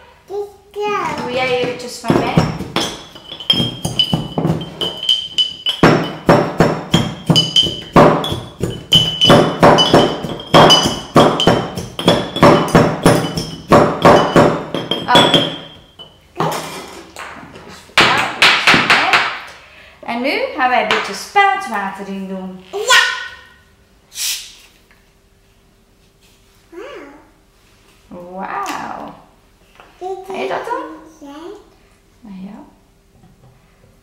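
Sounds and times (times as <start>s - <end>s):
glass jars clinking: 1.1s - 17.4s.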